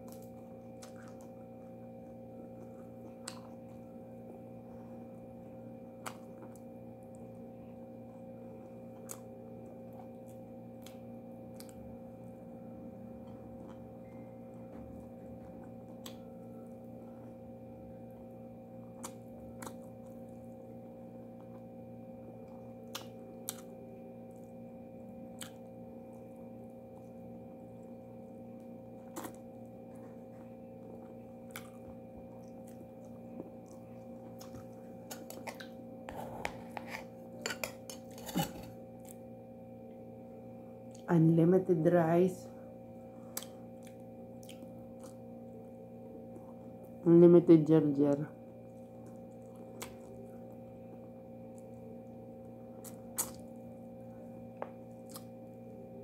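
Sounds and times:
steady low hum: 0:00.0 - 0:56.0
eating clicks and mouth smacks: 0:22.8 - 0:23.7, 0:25.4 - 0:25.7, 0:43.4 - 0:45.2, 0:49.0 - 0:50.2, 0:52.8 - 0:53.5, 0:55.0 - 0:55.3.

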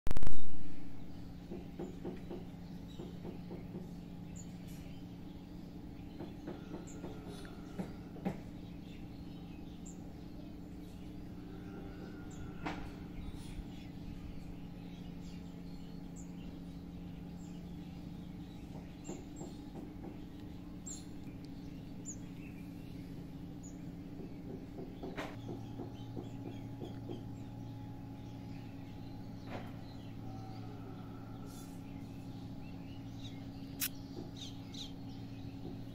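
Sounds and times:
steady low hum: 0:00.2 - 0:35.9
short high bird chirps: 0:33.7 - 0:34.2.

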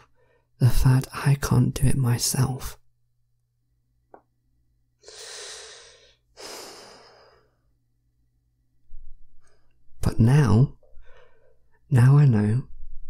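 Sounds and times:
man breathing heavily: 0:05.0 - 0:07.8, 0:10.9 - 0:11.7.

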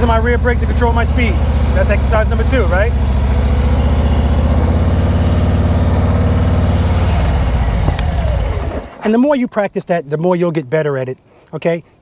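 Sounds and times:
motorcycle engine above idle: 0:00.0 - 0:09.0.

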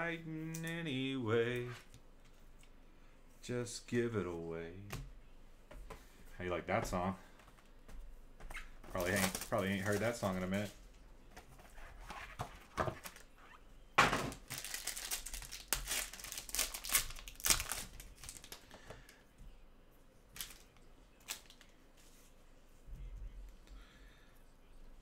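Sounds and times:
foil wrapper crinkling and tearing: 0:08.9 - 0:10.6, 0:14.4 - 0:18.8, 0:20.4 - 0:21.7.

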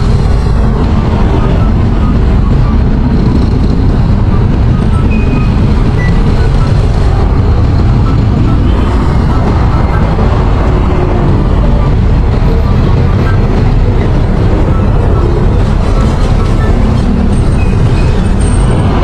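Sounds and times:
wind noise: 0:00.0 - 0:19.0.

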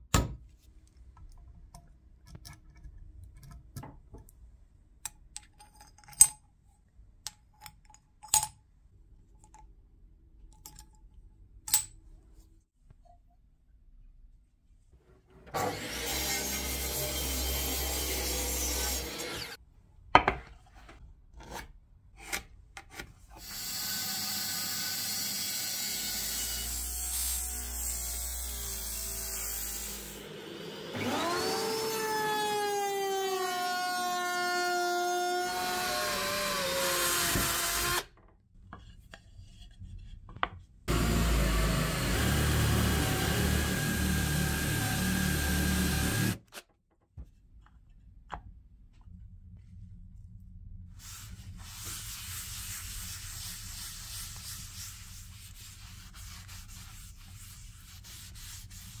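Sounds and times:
mitre saw cutting wood: 0:15.6 - 0:19.6, 0:23.4 - 0:38.1, 0:40.9 - 0:46.5
electric drill boring into wood: 0:23.4 - 0:26.6, 0:29.9 - 0:38.1, 0:40.9 - 0:46.4
router motor whining: 0:29.9 - 0:38.0, 0:40.9 - 0:46.4.

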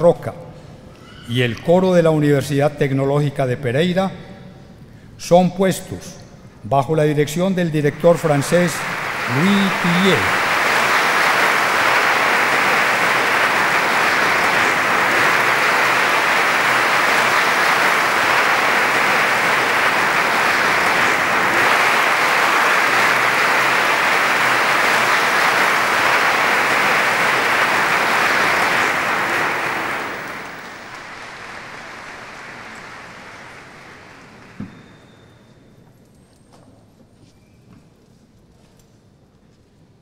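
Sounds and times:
audience applauding: 0:07.6 - 0:35.4.

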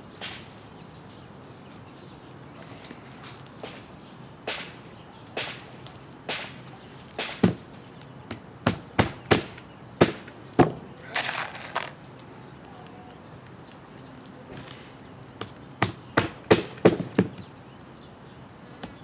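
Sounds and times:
scraping rustle: 0:11.0 - 0:12.0.

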